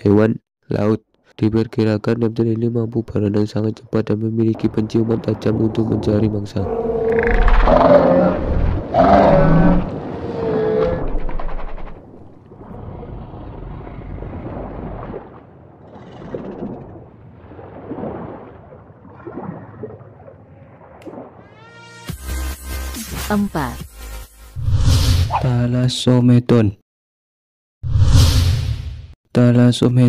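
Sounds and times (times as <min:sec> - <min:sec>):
deep growling creature calls: 0:05.0 - 0:12.0.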